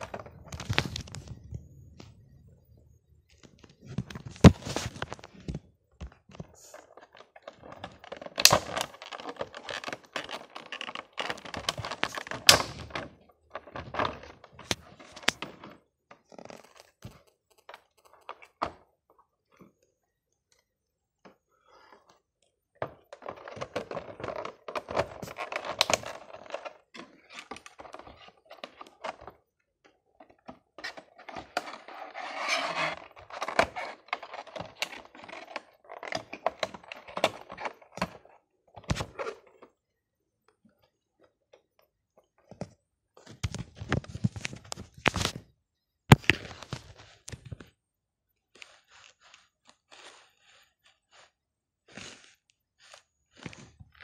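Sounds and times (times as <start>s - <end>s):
plastic wrap crinkling: 0.0s - 1.4s, 6.6s - 15.4s.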